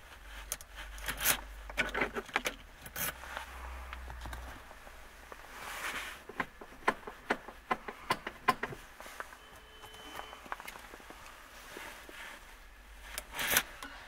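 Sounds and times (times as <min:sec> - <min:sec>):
gear lever clicks and knocks: 0:06.3 - 0:08.8.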